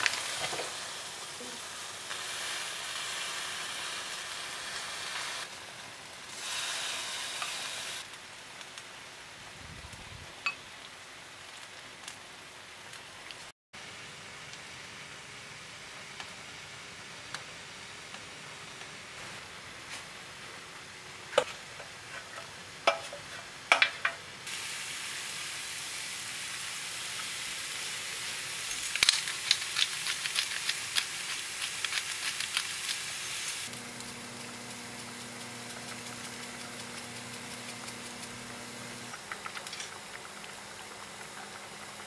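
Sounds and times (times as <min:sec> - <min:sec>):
food sizzling in a hot pan: 0:00.0 - 0:08.1, 0:21.4 - 0:42.0
steady hum: 0:33.7 - 0:39.3.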